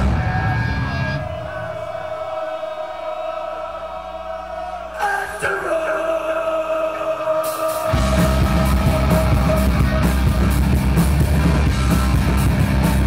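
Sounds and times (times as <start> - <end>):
live rock band: 0.0 - 1.5, 7.2 - 13.0
choir-like drone: 0.8 - 10.2.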